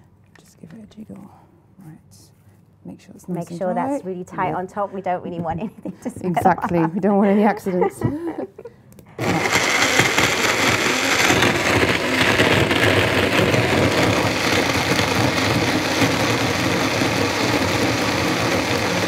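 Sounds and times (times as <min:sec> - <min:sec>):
blender running: 0:09.2 - 0:19.0.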